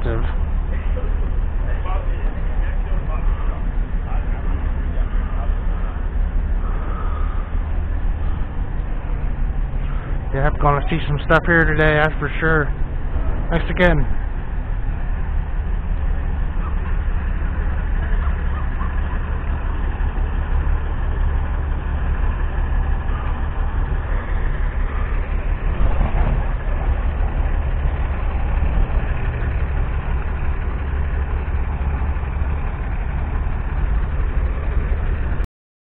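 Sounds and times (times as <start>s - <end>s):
truck diesel engines idling: 0.0s - 35.5s.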